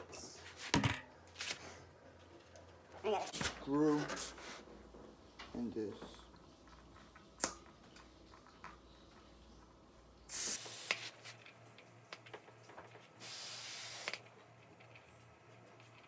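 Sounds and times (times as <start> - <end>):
air hissing out of tyre: 10.3 - 11.1, 13.2 - 14.2.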